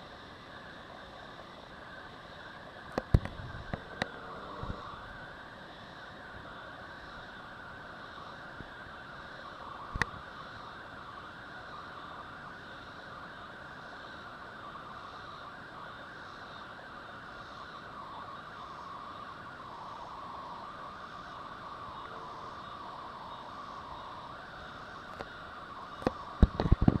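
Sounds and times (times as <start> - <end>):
steady background hiss: 0.0 - 27.0.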